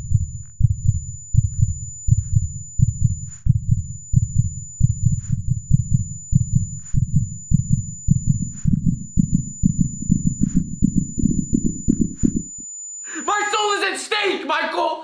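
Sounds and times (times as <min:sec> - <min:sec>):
fast heartbeat: 0:00.0 - 0:12.6
high-pitched ringing tone: 0:00.0 - 0:13.9.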